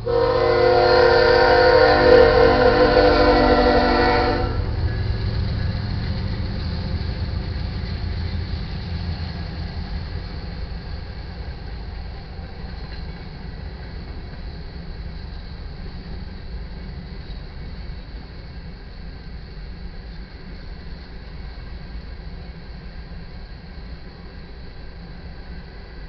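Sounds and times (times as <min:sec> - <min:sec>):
locomotive air horn chord: 0:00.0 - 0:05.2
train cars running on rails: 0:00.0 - 0:26.0.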